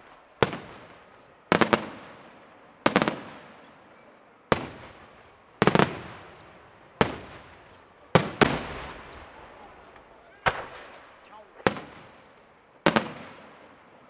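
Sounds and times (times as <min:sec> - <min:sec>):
firework shells bursting: 0:09.9 - 0:12.2.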